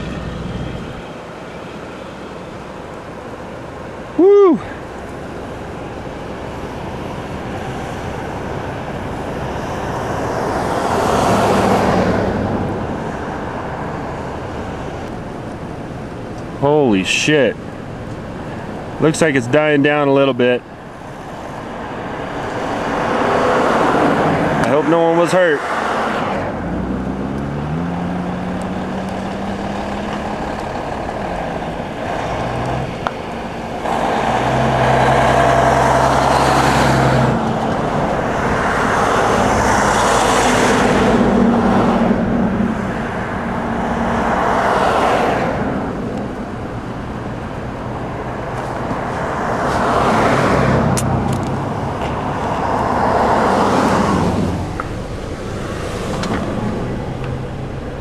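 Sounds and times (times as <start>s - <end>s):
low engine hum: 0.0s - 24.9s, 26.1s - 58.0s
vehicles rushing past: 0.0s - 58.0s.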